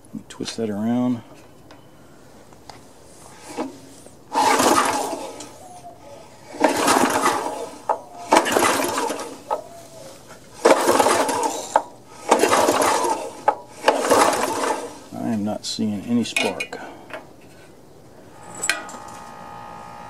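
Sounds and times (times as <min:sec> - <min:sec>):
recoil starter rope pull whir: 0:03.2 - 0:15.1, 0:18.3 - 0:20.0.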